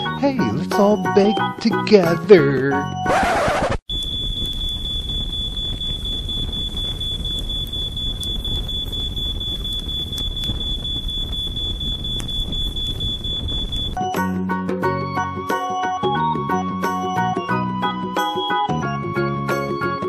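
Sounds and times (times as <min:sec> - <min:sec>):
smoke alarm tone: 0:02.8 - 0:14.1
low rumbling noise: 0:03.9 - 0:14.0.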